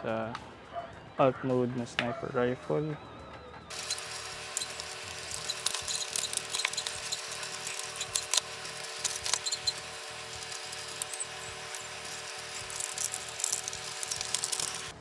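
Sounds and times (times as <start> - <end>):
plastic toy parts clicking: 3.7 - 15.0.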